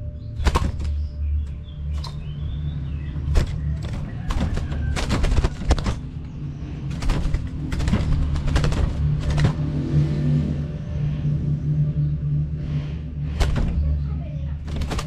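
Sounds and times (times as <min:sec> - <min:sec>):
bird wings flapping in cage: 0:00.4 - 0:01.2, 0:01.9 - 0:02.3, 0:03.2 - 0:10.3, 0:13.4 - 0:14.0, 0:14.6 - 0:15.0
cage bars rattling: 0:00.4 - 0:09.9, 0:14.6 - 0:15.0.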